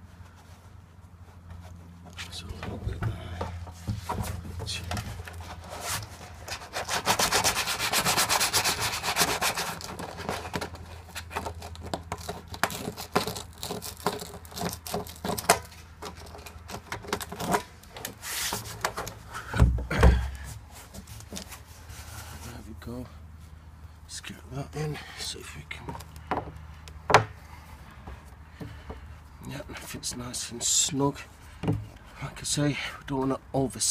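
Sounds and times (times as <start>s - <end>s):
sandpaper rasping on plastic: 5.4s - 15.4s.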